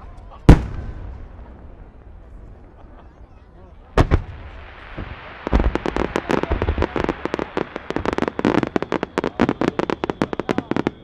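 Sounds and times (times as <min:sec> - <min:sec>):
fireworks bangs and crackles: 0:00.0 - 0:11.0.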